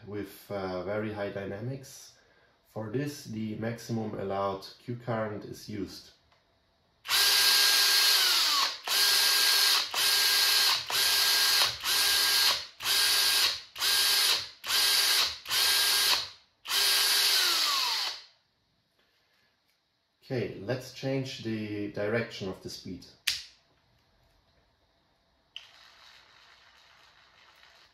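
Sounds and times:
cordless drill motor whining: 7.1s - 18.2s.

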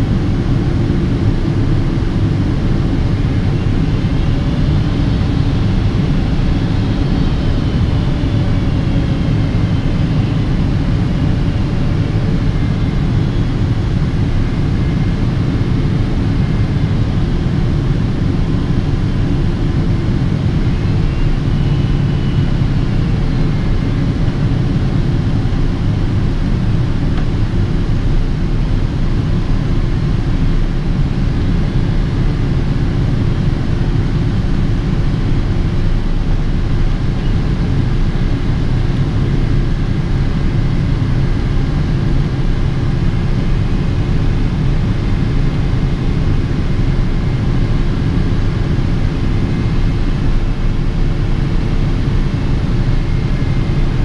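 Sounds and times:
faint high whines: 0.0s - 30.5s
jet engine and airflow rush: 0.0s - 54.0s.

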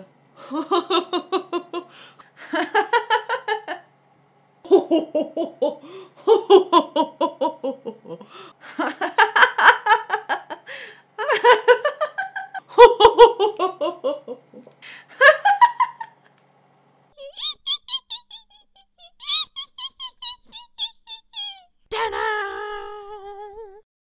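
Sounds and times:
woman laughing hard: 0.4s - 3.9s, 4.7s - 16.3s, 17.2s - 21.6s
short breaths: 1.9s - 2.4s, 8.2s - 8.6s, 10.7s - 11.1s.

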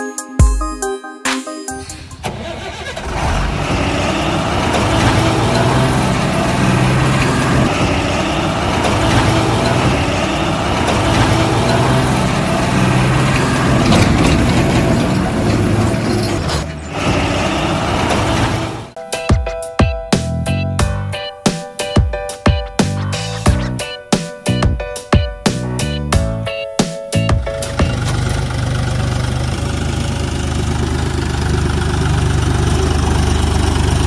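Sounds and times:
diesel truck engine idling: 2.0s - 19.0s, 27.2s - 34.0s.

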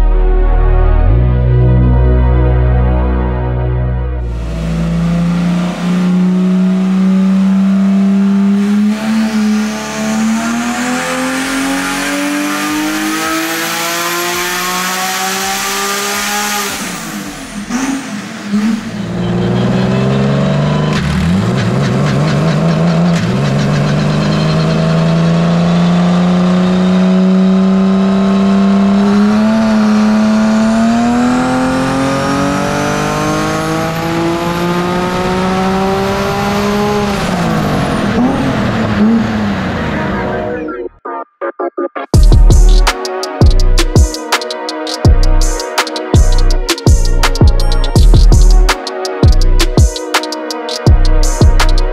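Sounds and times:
engine revving under load: 4.2s - 40.5s.

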